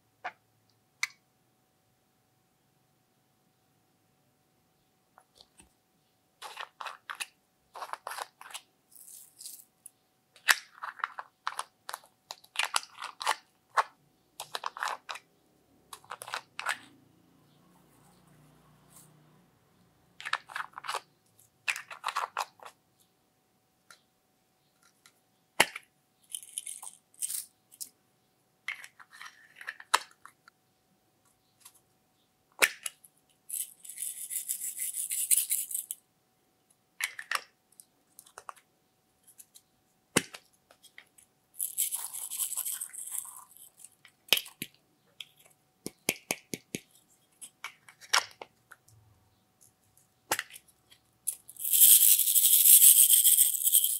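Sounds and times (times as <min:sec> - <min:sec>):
plastic pots clicking and tapping: 0:44.3 - 0:46.9
glitter rattling pour: 0:51.6 - 0:53.9.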